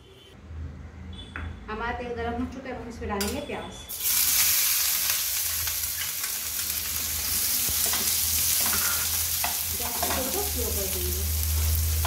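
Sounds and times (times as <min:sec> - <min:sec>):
onion sizzling in hot oil: 0:03.9 - 0:12.0
spoon scraping and clinking pan: 0:07.8 - 0:10.4.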